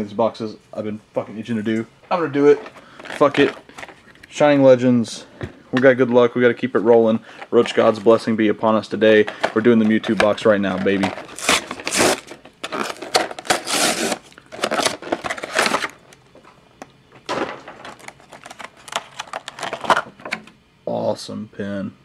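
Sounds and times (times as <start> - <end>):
plastic tray crinkling: 2.1 - 4.2, 5.8 - 16.6, 17.2 - 20.4
cardboard box rustling: 9.4 - 16.0.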